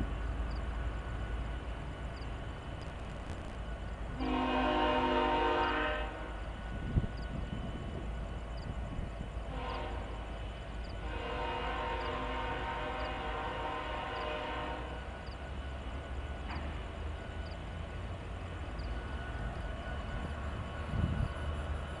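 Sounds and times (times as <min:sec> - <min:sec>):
low rumble of approaching train: 0:00.0 - 0:22.0
multi-tone train air horn blasts: 0:04.2 - 0:06.4, 0:09.5 - 0:10.3, 0:11.0 - 0:15.2.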